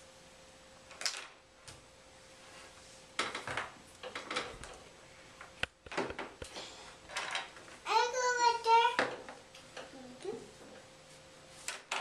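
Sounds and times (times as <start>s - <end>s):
plastic toys clattering on table: 0.9s - 1.4s, 3.2s - 4.8s, 7.1s - 7.7s, 11.7s - 12.0s.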